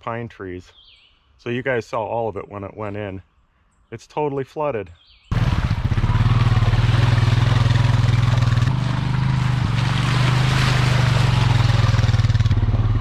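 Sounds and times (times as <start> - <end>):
quad engine running: 5.3 - 13.0.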